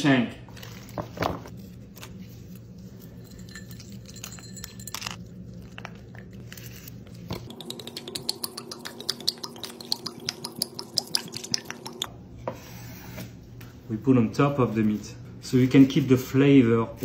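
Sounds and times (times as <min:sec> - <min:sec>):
wine pouring and splashing: 0:07.4 - 0:12.1.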